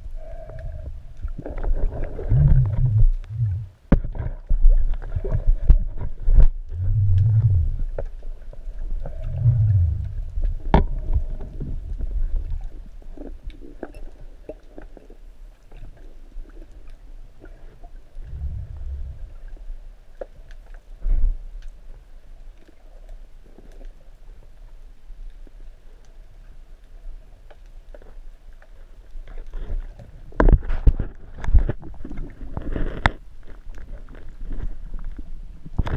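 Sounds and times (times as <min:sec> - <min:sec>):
low underwater rumbling surges: 0:00.0 - 0:12.7, 0:18.2 - 0:19.9.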